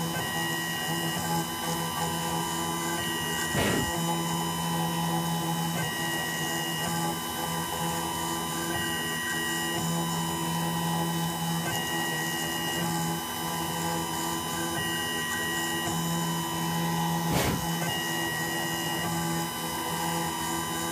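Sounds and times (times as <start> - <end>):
milling machine motor hum: 0.0 - 20.9
stepper motor tone: 2.8 - 7.1, 14.8 - 19.4.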